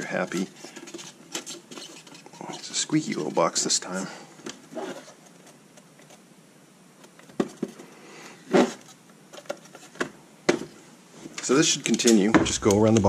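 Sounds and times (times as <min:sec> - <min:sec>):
plastic panels knocking and squeaking: 0:12.0 - 0:13.0.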